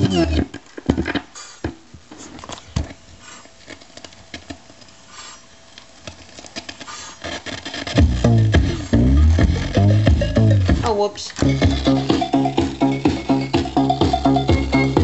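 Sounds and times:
music from record player: 0.0s - 0.6s, 7.2s - 15.0s
record being handled on turntable: 0.0s - 5.0s, 5.6s - 11.7s.

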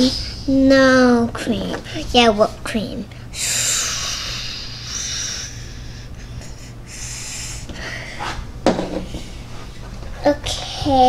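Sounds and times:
child making hissing sound: 3.4s - 6.1s, 6.9s - 8.3s.

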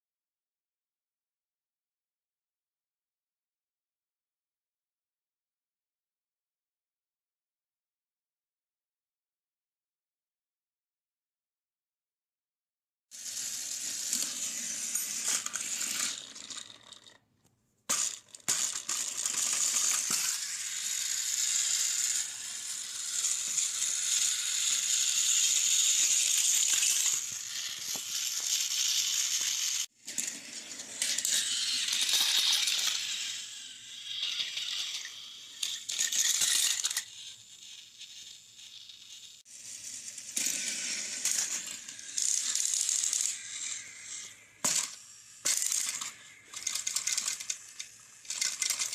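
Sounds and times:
plastic toy trains clattering: 13.2s - 17.2s, 17.9s - 48.9s.

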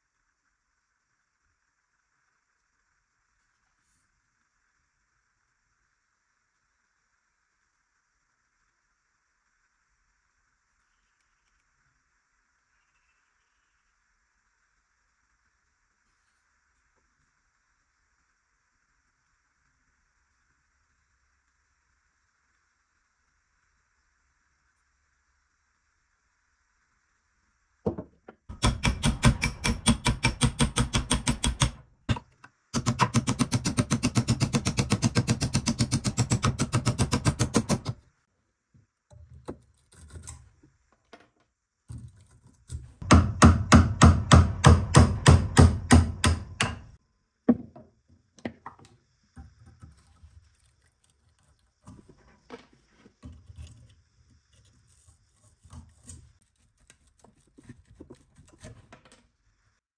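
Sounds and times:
rapid hammer blows: 28.5s - 31.8s, 32.8s - 38.0s.

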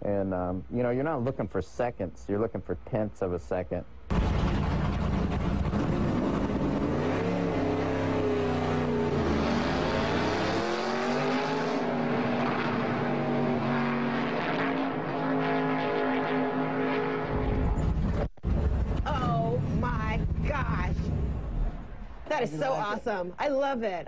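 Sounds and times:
race car engine at speed: 4.1s - 22.3s.

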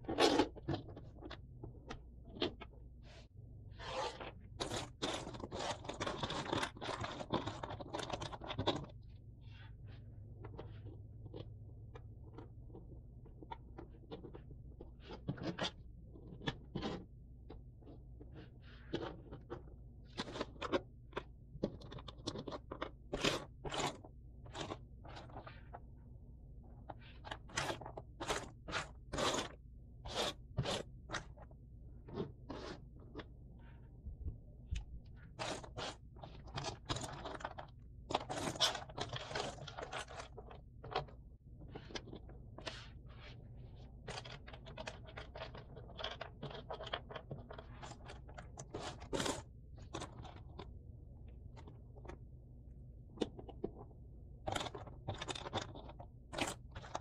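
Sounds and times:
rustling and scraping: 0.0s - 52.3s, 53.2s - 57.0s
puzzle pieces clicking and scraping: 10.4s - 25.8s, 26.9s - 33.3s, 35.3s - 43.0s, 43.8s - 50.7s.

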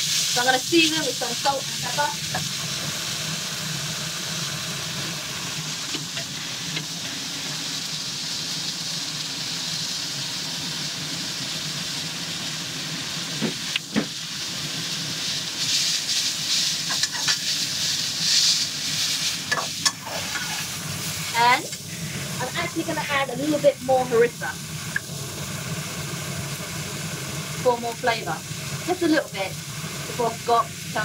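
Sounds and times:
vegetables sizzling in a wok: 0.0s - 31.0s.

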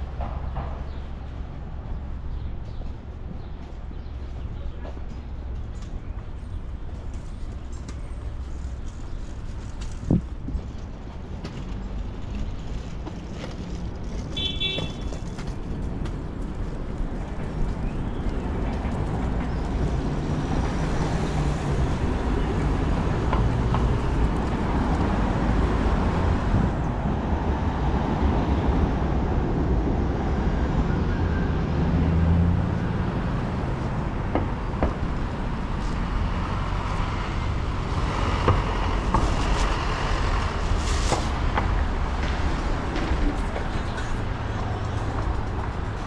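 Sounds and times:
cars driving past: 18.4s - 46.0s.

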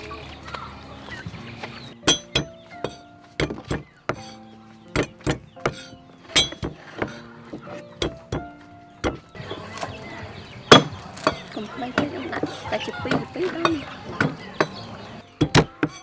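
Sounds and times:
knife striking chopping board: 2.1s - 9.3s, 15.4s - 16.0s.

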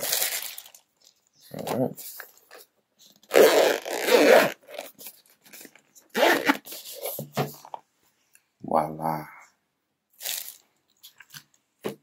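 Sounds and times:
zipper unzipping: 3.3s - 4.9s, 6.1s - 7.0s.

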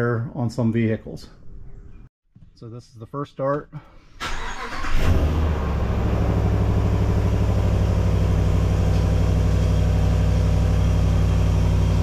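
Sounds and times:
pickup engine starting and idling: 4.2s - 12.0s.

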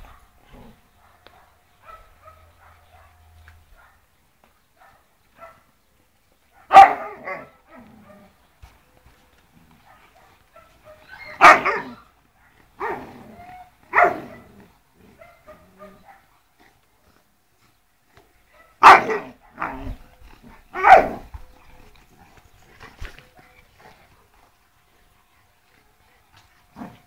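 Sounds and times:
dogs barking: 0.0s - 4.1s, 4.8s - 5.7s, 6.6s - 8.4s, 9.8s - 13.2s, 13.9s - 16.4s, 18.5s - 22.4s.

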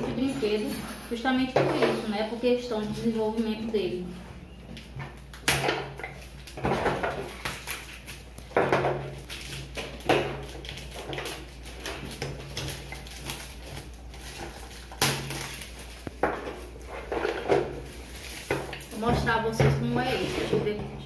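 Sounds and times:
plastic shrink wrap crinkling: 4.8s - 20.5s.

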